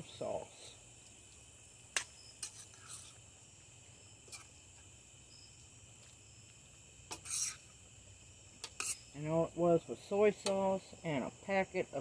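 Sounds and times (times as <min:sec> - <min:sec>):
crickets chirring: 0:00.0 - 0:12.0
metal spoon scraping a skillet: 0:02.3 - 0:03.2, 0:07.1 - 0:07.7, 0:08.6 - 0:09.1.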